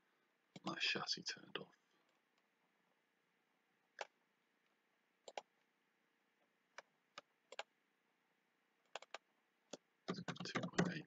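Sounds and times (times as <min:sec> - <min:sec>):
computer mouse clicking: 0:05.2 - 0:05.5, 0:06.7 - 0:07.7, 0:08.9 - 0:11.0.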